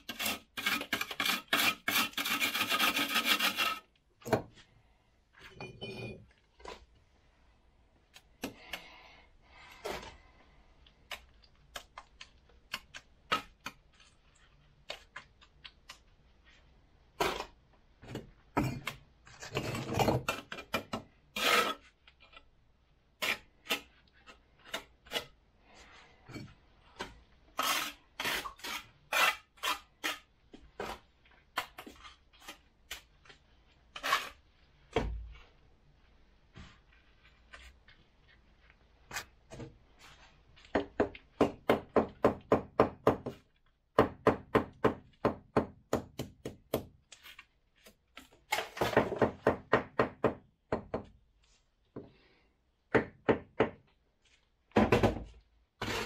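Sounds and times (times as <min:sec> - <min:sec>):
trowel scraping and knocking bricks: 0:00.0 - 0:04.7, 0:17.1 - 0:22.5, 0:23.2 - 0:25.4, 0:26.2 - 0:35.4, 0:46.5 - 0:49.5, 0:54.8 - 0:56.0.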